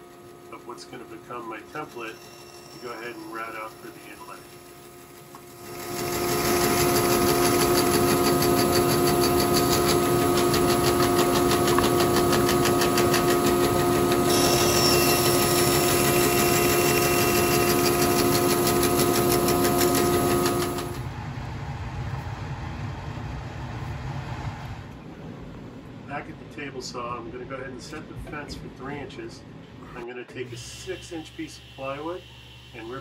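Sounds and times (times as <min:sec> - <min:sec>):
bandsaw humming and cutting: 0:00.0 - 0:21.0, 0:30.7 - 0:33.0.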